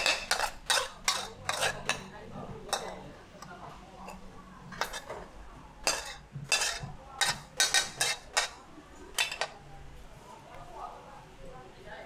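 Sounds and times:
metal spatula scraping wok: 0:00.0 - 0:03.0, 0:04.0 - 0:09.6.

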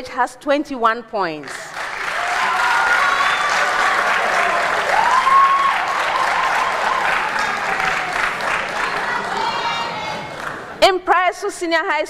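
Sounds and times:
audience applauding: 0:01.4 - 0:10.8
voices calling out: 0:06.2 - 0:10.8.

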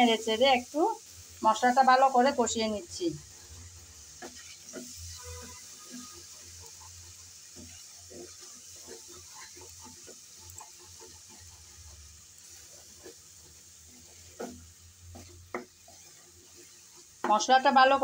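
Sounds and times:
paste sizzling in oil: 0:00.0 - 0:18.0
spatula scraping a pan: 0:01.6 - 0:18.0
spatula tapping on pan: 0:14.3 - 0:16.1, 0:17.2 - 0:17.7.

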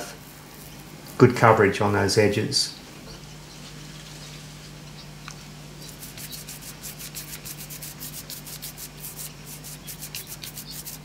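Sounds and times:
steady low hum: 0:00.0 - 0:11.0
paint roller rubbing strokes: 0:05.8 - 0:11.0.

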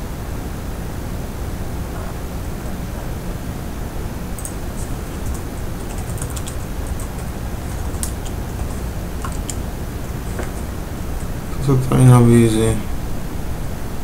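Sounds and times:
background hiss: 0:00.0 - 0:14.0
keyboard typing: 0:04.4 - 0:12.0.

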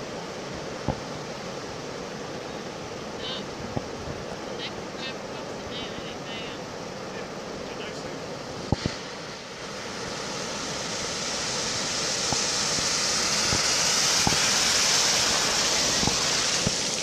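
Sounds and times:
truck splashing through water: 0:09.7 - 0:17.0.

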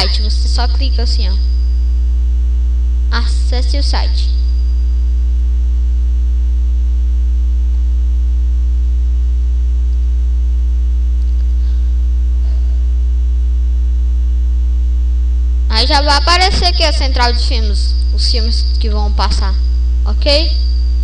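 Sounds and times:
low electrical mains hum: 0:00.0 - 0:21.0
faint high tone: 0:03.1 - 0:04.9, 0:15.7 - 0:21.0.

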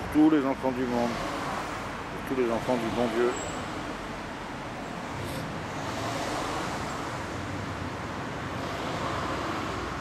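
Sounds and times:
road traffic noise: 0:00.0 - 0:10.0.

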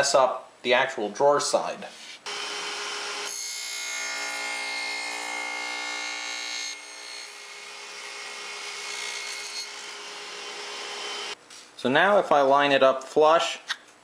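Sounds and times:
saw cutting wood: 0:02.3 - 0:11.4.

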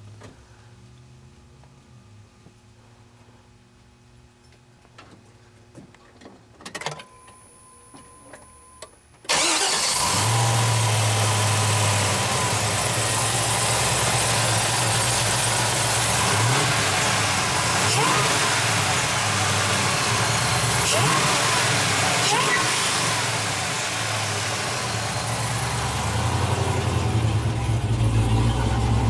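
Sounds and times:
car engine starting and idling: 0:09.3 - 0:29.0
engine throttle blips: 0:09.3 - 0:29.0.

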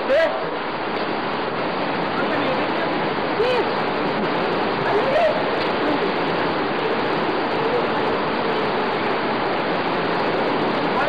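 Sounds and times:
rush of falling water: 0:00.0 - 0:11.0.

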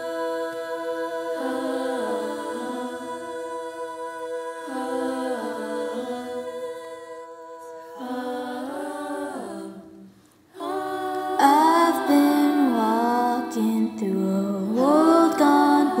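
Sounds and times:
choir singing a cappella: 0:00.0 - 0:16.0.

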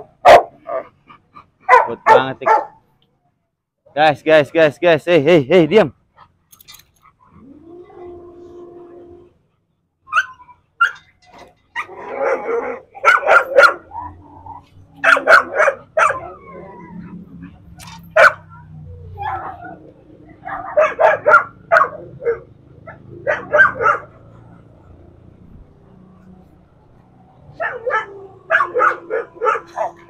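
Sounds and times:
dogs barking aggressively: 0:00.0 - 0:02.9, 0:10.1 - 0:25.8, 0:27.5 - 0:30.0.

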